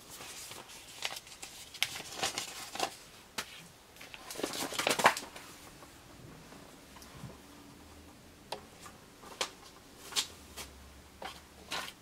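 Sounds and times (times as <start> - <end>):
cards and papers rustling: 0.0 - 5.9.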